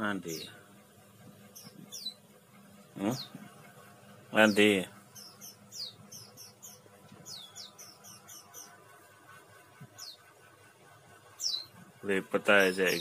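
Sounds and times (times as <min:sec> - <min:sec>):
high-pitched bird chirping: 0:01.6 - 0:02.2, 0:04.5 - 0:08.8, 0:11.4 - 0:11.8.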